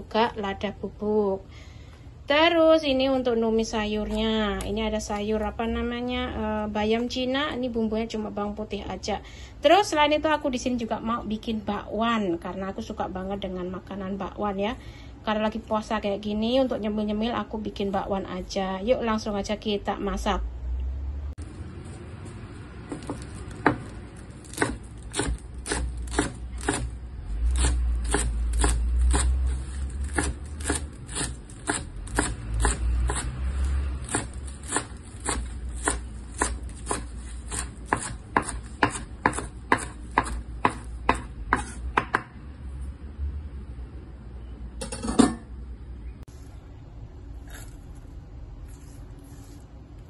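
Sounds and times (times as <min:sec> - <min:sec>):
knife chopping on wooden board: 0:22.9 - 0:26.9, 0:30.0 - 0:33.3, 0:34.0 - 0:42.3.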